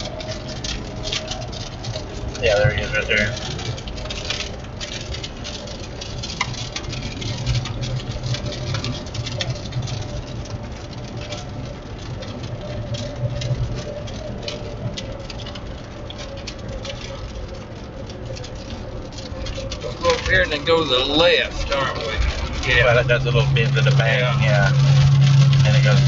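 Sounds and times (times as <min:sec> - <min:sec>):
engine and tyre hum: 0:00.0 - 0:26.0
rain pattering on car: 0:00.0 - 0:26.0.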